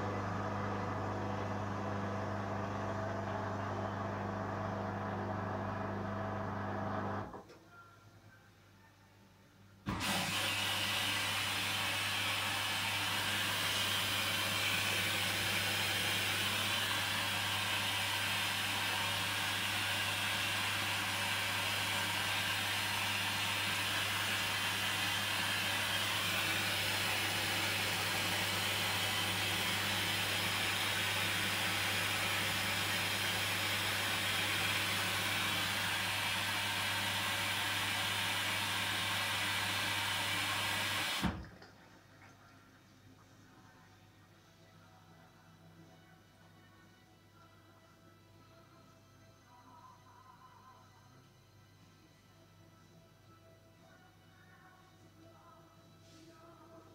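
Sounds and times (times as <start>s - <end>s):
water rushing into washing machine: 9.9s - 42.3s.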